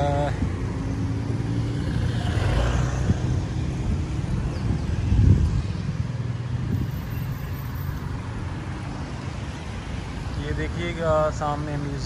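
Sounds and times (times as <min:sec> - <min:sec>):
motor vehicle running nearby: 0:00.0 - 0:10.4
street traffic: 0:00.0 - 0:12.0.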